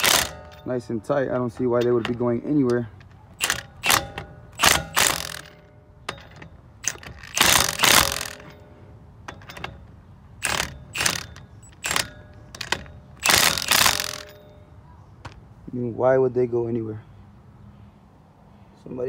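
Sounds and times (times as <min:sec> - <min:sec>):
impact wrench hammering: 0:00.0 - 0:08.6, 0:09.3 - 0:14.5.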